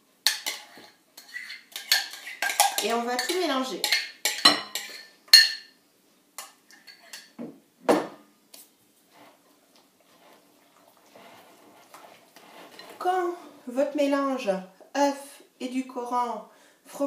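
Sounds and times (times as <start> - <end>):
faint stirring scrapes: 0.3 - 5.2, 6.4 - 7.4, 8.6 - 13.7.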